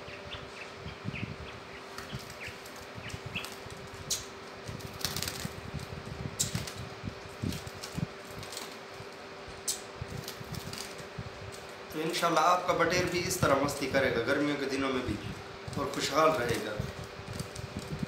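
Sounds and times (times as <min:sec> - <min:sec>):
steady low hum: 0:00.0 - 0:18.0
quail wings fluttering: 0:01.8 - 0:11.8, 0:15.6 - 0:18.0.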